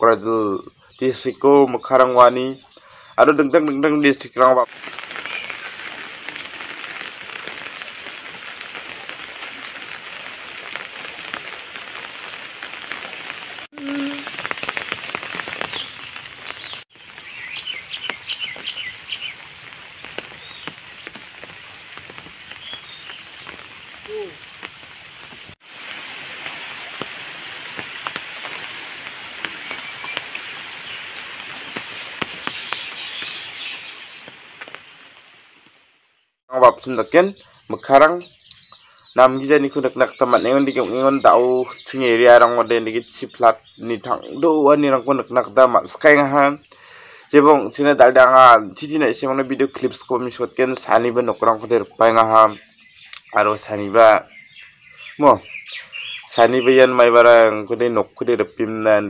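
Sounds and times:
heavy rain on water: 4.6s - 36.0s
bird chirps: 15.6s - 19.5s, 20.1s - 25.5s, 29.4s - 35.1s, 37.4s - 42.0s, 52.3s - 57.0s.

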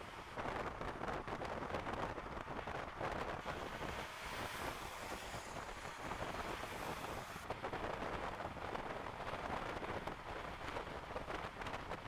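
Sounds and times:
wind rushing past car: 0.0s - 12.0s.

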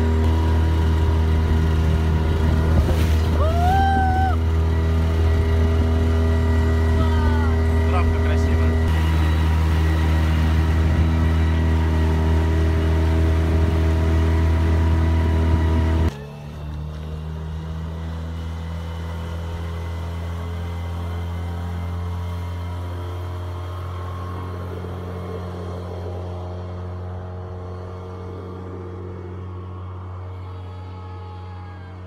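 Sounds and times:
outboard motor running: 0.0s - 32.0s.

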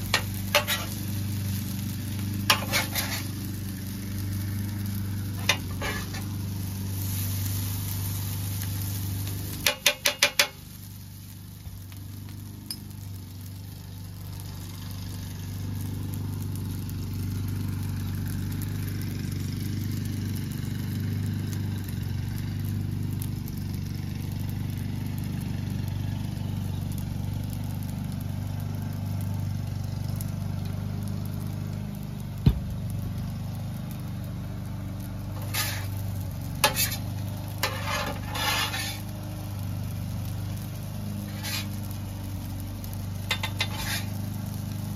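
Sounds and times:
spatula tapping steel griddle: 0.0s - 1.1s, 2.2s - 3.3s, 5.3s - 6.3s, 9.5s - 10.6s, 35.4s - 36.0s, 36.6s - 39.1s, 41.3s - 41.8s, 43.3s - 44.2s
food sizzling on a griddle: 0.0s - 44.9s
low mechanical hum: 0.0s - 44.9s.

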